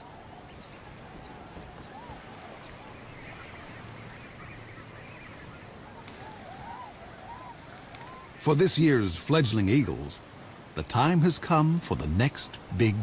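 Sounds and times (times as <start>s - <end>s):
waterfowl calling: 0.0s - 8.6s
outdoor ambience hiss: 0.0s - 13.0s.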